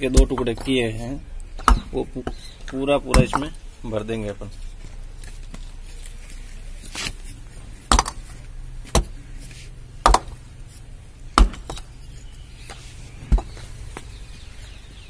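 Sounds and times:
clay bricks knocking into pit: 3.1s - 3.6s, 7.9s - 8.2s, 10.0s - 10.4s.

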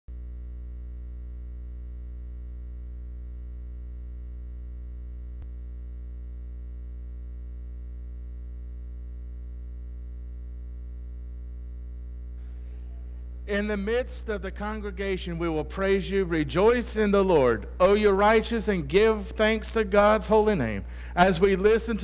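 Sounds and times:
electrical mains hum: 0.1s - 22.0s.

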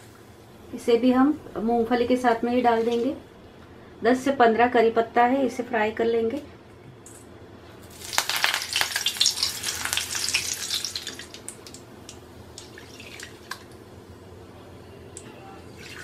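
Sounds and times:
leaves sizzling in hot oil: 7.8s - 13.6s
oil popping: 7.9s - 13.8s.

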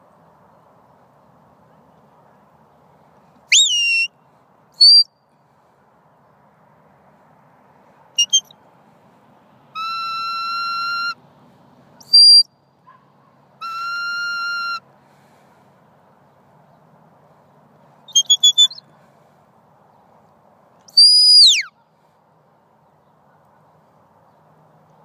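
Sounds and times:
whistle commands: 3.5s - 4.2s, 4.8s - 5.2s, 8.2s - 8.5s, 9.8s - 11.2s, 12.1s - 12.6s, 13.6s - 14.8s, 18.1s - 18.8s, 21.0s - 21.7s.

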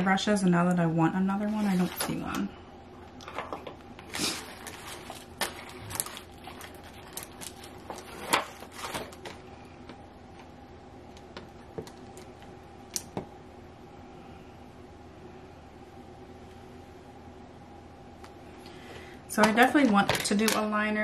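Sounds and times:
makeup brushes clicking and clattering: 19.4s - 20.8s.

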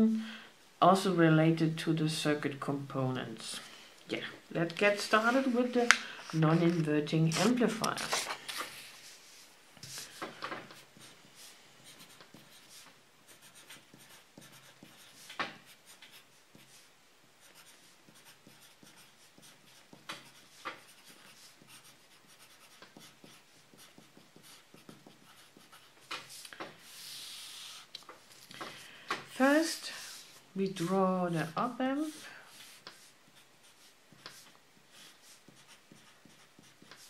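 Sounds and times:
pencil scratching on paper: 6.3s - 27.9s, 29.4s - 37.0s.

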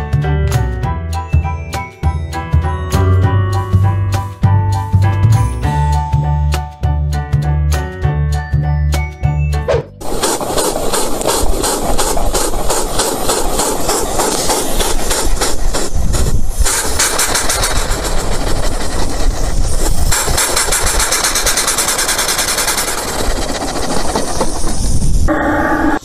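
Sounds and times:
tyre burnout hiss: 10.0s - 25.3s.

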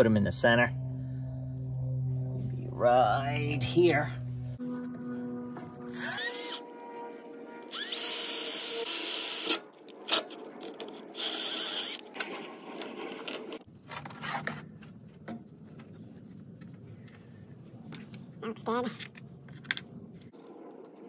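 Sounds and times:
drill motor whining: 5.7s - 6.7s, 7.6s - 10.3s, 11.0s - 12.1s
drill bit screeching through metal: 5.8s - 6.6s, 7.7s - 10.2s, 11.1s - 12.0s.

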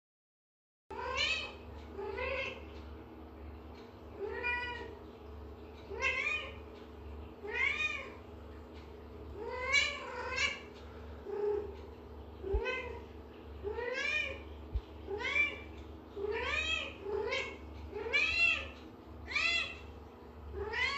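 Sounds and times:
cat meowing: 20.6s - 20.9s.

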